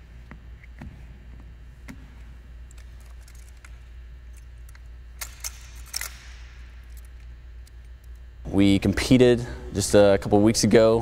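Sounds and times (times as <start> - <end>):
steady low hum: 0.0 - 11.0
rifle clicks and metallic clinks: 2.7 - 8.2
sharp rifle clicks: 4.7 - 7.1.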